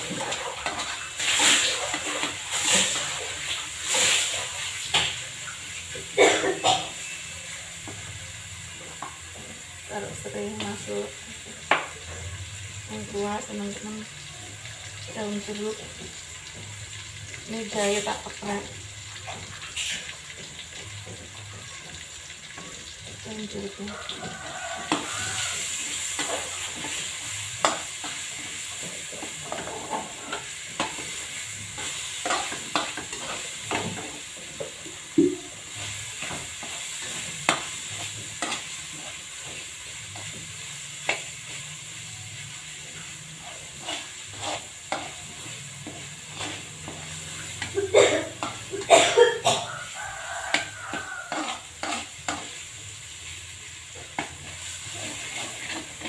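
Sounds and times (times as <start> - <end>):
spatula scraping and tapping wok: 0.0 - 5.9, 7.0 - 56.0
spice paste sizzling in oil: 0.0 - 56.0
spatula clanking on wok: 19.2 - 41.3, 43.8 - 52.7.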